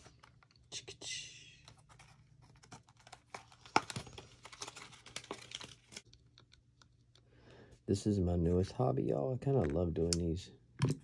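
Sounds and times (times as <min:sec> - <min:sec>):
plastic blister pack crinkling: 0:01.8 - 0:06.9.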